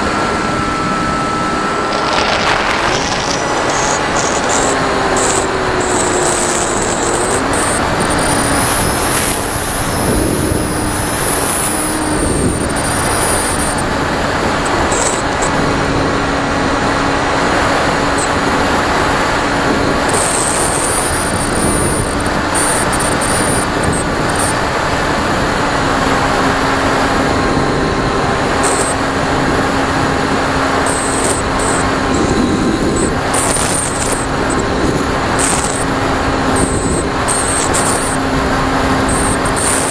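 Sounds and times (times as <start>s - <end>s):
model airplane motor and propeller: 0.0s - 39.9s
thin high whine: 0.0s - 39.9s
wind rushing: 1.7s - 5.7s.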